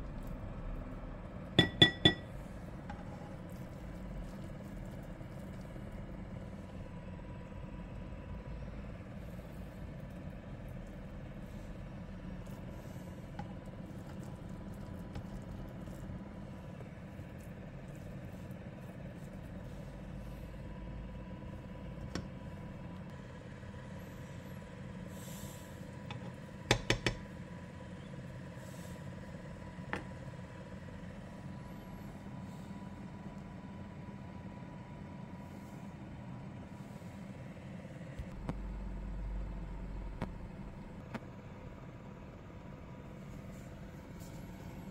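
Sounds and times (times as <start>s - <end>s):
steady low hum: 0.0s - 44.9s
spatula knocking against pan: 1.6s - 2.3s, 26.1s - 27.3s.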